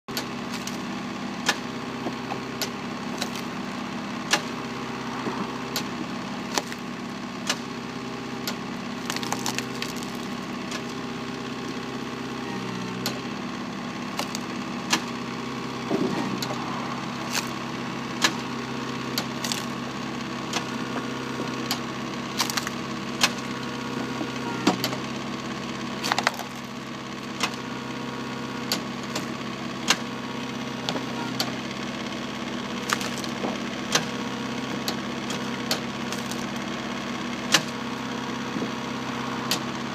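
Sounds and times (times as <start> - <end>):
log splitter engine running: 0.1 - 39.9
wood cracking and snapping: 9.0 - 10.4, 14.2 - 14.4, 19.4 - 19.7, 22.3 - 23.4, 26.0 - 26.7, 32.8 - 33.4, 36.0 - 36.6.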